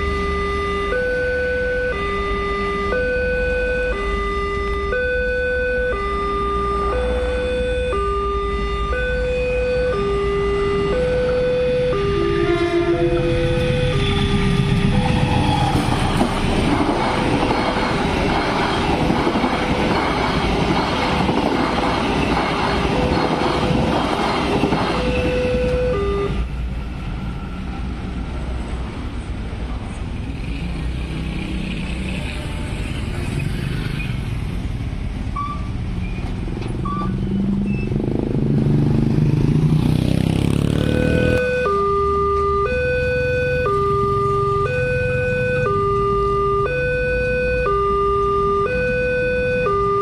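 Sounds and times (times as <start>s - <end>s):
two-tone crossing warning sounder: 0.0s - 29.3s, 29.9s - 50.0s
road traffic: 0.0s - 50.0s
train wheels clattering on rail: 15.2s - 25.4s
motorcycle engines: 24.6s - 49.0s.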